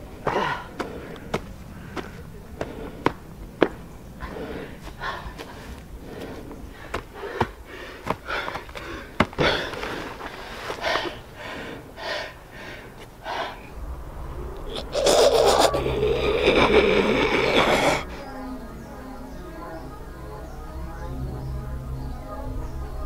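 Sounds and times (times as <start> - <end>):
man panting for breath: 0.2 - 3.4, 4.2 - 13.7
sharp footfalls: 6.9 - 10.3.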